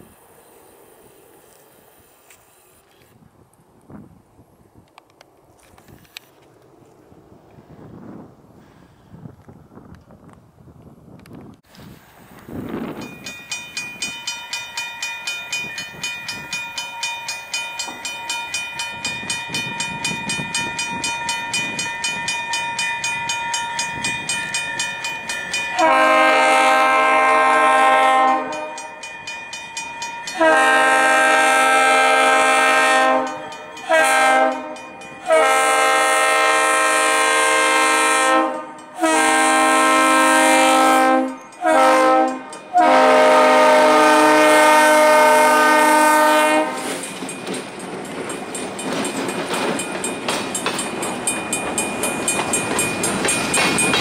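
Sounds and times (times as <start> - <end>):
crossing warning bell ringing: 12.5 - 54.0
locomotive air horn: 25.7 - 28.9, 30.3 - 47.0.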